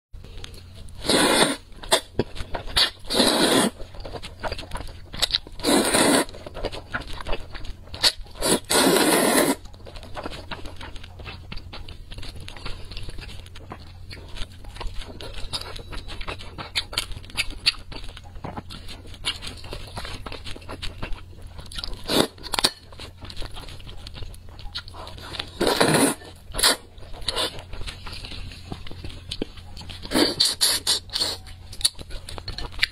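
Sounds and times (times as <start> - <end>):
wet chewing with small clicks: 0.2 - 1.0, 1.6 - 32.9
noodle slurping: 1.0 - 2.1, 2.7 - 3.8, 5.6 - 6.4, 8.0 - 9.6, 25.5 - 27.6, 30.1 - 31.4.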